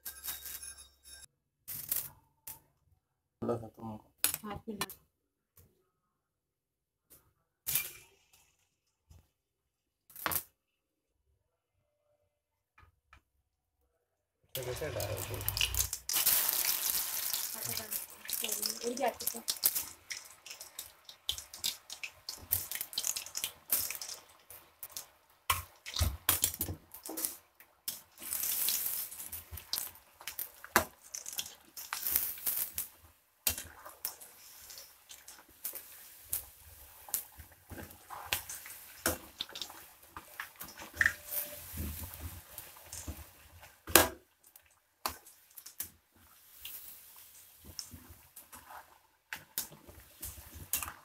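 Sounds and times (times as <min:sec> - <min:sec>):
food deep-frying in hot oil: 0:14.6 - 0:51.0.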